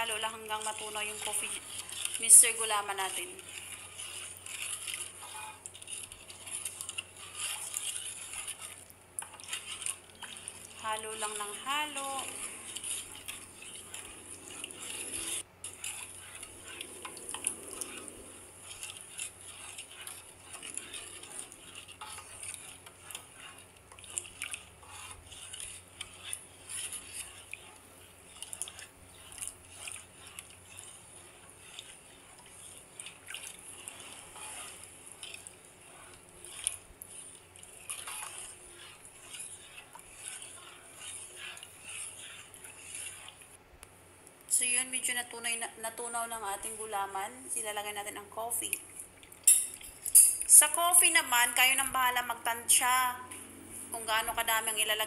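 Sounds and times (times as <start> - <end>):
spatula scraping pan bottom: 0.0 - 43.6
liquid swishing: 0.0 - 50.6.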